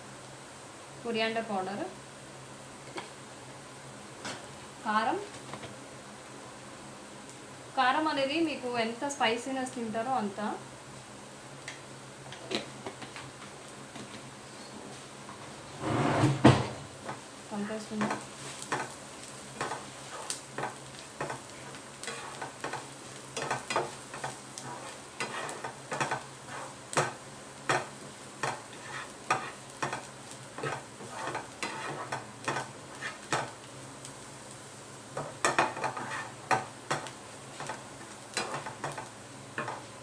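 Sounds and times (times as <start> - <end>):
hot oil sizzling: 0.0 - 40.0
wooden spatula scraping pan: 15.8 - 16.5, 19.6 - 33.5, 35.2 - 37.8.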